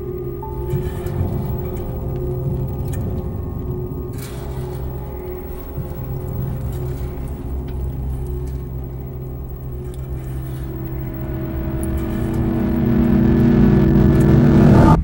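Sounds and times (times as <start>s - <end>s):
deep low drone: 0.0s - 15.0s.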